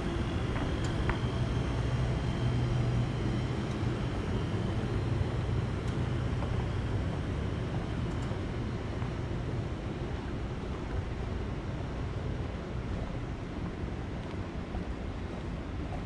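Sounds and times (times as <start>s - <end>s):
low engine drone: 0.0s - 16.0s
outdoor background noise: 0.0s - 16.0s.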